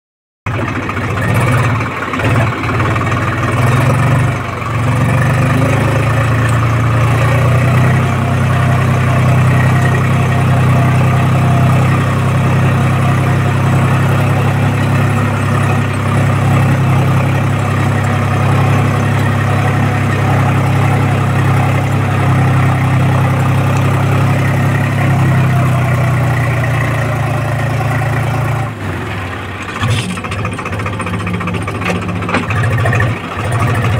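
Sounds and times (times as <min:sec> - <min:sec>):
tractor diesel engine running: 0:00.5 - 0:33.9.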